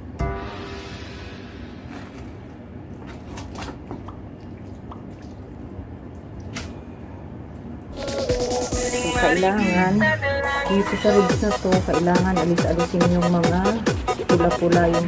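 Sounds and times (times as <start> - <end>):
low steady hum: 0.0 - 8.0
wet squishing of raw chicken: 1.9 - 7.9.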